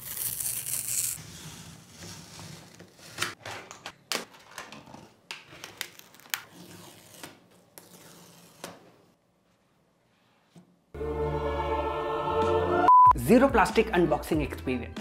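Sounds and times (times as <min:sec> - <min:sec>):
packing tape ripping: 0:00.0 - 0:01.2
utility knife cutting tape: 0:00.0 - 0:01.2.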